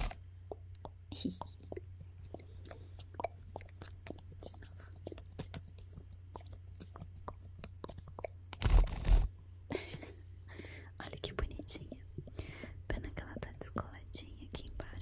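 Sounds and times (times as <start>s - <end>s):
paper crinkling: 7.9s - 9.3s.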